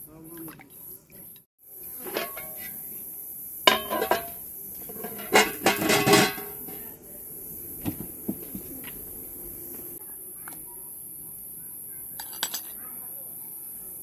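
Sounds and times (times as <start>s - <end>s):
metal tray clanking: 2.0s - 2.8s, 3.7s - 6.9s
metal tray clattering rattle: 2.0s - 2.8s, 3.7s - 6.8s.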